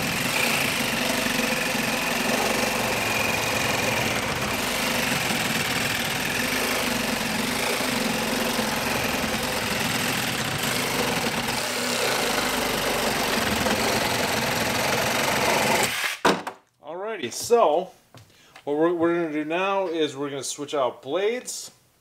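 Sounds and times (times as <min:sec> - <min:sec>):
reciprocating saw cutting wood: 0:00.0 - 0:16.2.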